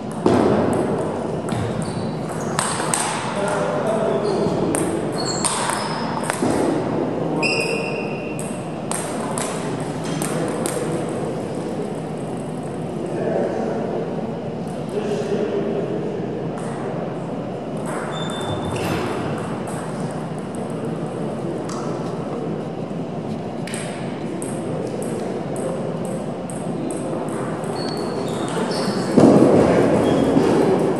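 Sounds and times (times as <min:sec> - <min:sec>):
table tennis balls hitting bats: 0:00.0 - 0:12.6, 0:17.7 - 0:22.0, 0:23.6 - 0:30.9
murmur of hall noise: 0:00.0 - 0:30.9
table tennis balls clicking: 0:04.7 - 0:06.6.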